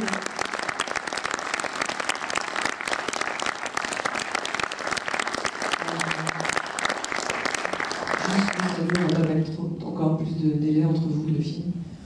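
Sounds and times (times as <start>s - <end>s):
audience applauding: 0.0s - 9.4s
person speaking: 8.2s - 11.7s.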